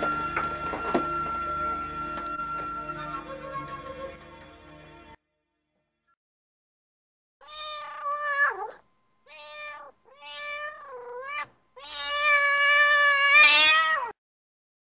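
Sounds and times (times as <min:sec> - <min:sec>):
cat meowing: 0:07.4 - 0:14.2.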